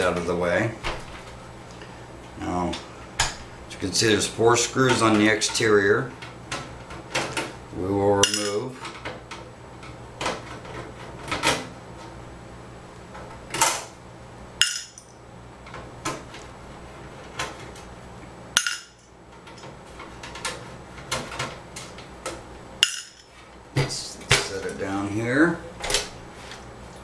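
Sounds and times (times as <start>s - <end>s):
sharp metal knocks: 18.6s - 19.0s, 22.8s - 23.2s.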